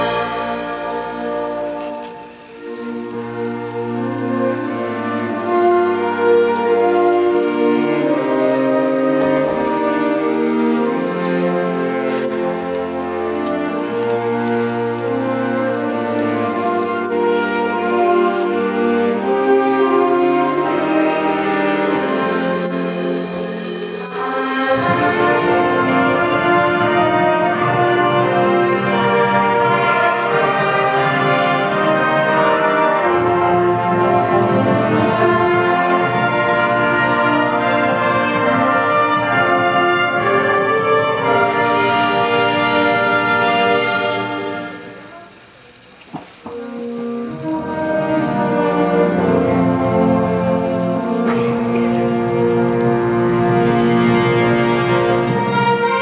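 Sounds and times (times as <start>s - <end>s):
concert band playing chords: 46.2s - 55.9s.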